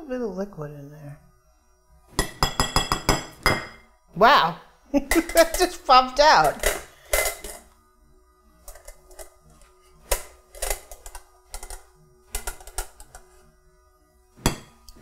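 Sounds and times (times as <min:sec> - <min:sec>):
spoon tapping metal cups: 0:02.2 - 0:03.8, 0:05.1 - 0:07.7, 0:08.7 - 0:13.4, 0:14.4 - 0:15.0.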